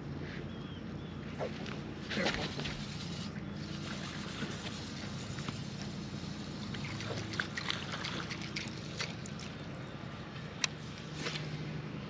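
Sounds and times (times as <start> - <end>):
water lapping around boat hull: 1.3 - 11.6
small splashes and ticks: 6.6 - 9.8.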